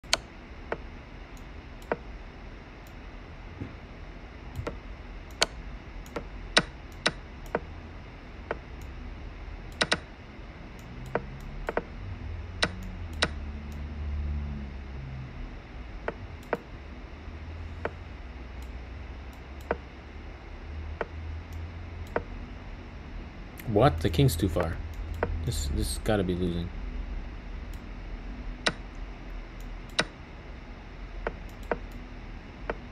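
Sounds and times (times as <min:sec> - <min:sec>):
computer mouse clicks: 0:04.6 - 0:07.7, 0:09.7 - 0:10.1, 0:10.8 - 0:11.9, 0:12.6 - 0:13.8, 0:16.0 - 0:16.7, 0:18.6 - 0:19.8, 0:28.6 - 0:28.9, 0:29.6 - 0:30.2, 0:31.2 - 0:32.0.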